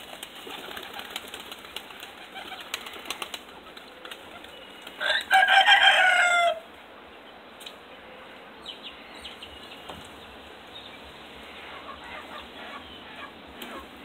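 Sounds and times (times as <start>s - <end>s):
pigeon wings flapping: 0.0s - 5.0s.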